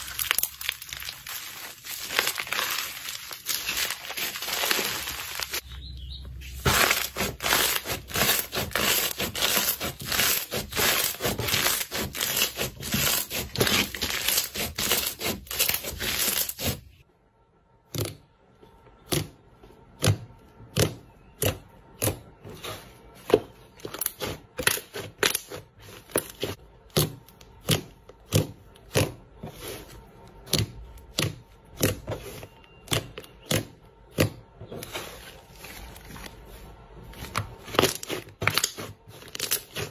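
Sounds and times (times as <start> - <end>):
slime crackling and popping: 0.0 - 5.6, 37.7 - 39.9.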